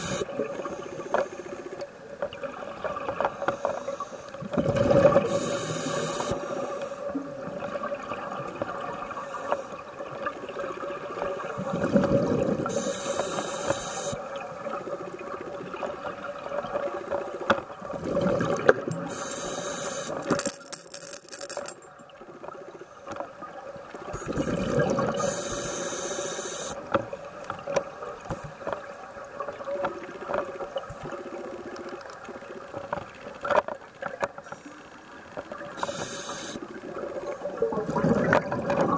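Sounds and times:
hissing regulator inhale: 0.0 - 1.9, 3.3 - 4.4, 5.3 - 7.1, 12.7 - 14.2, 19.0 - 20.3, 24.2 - 26.8, 35.8 - 36.6
exhaled bubbles rushing: 4.6 - 5.3, 17.8 - 18.9, 24.2 - 25.2, 36.7 - 38.9.

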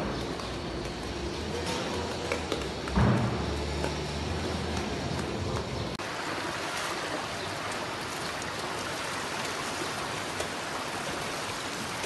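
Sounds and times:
water rushing over concrete: 5.9 - 12.0.

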